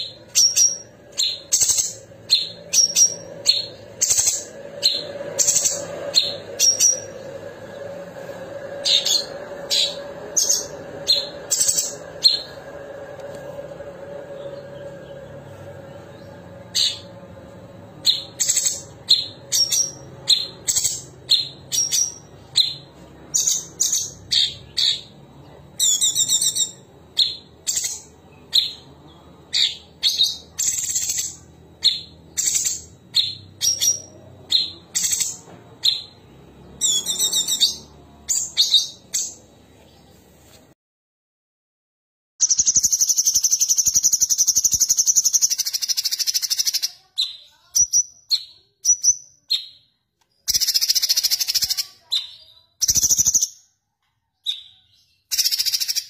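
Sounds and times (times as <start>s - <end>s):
bird singing sharp high notes: 0.0s - 25.2s.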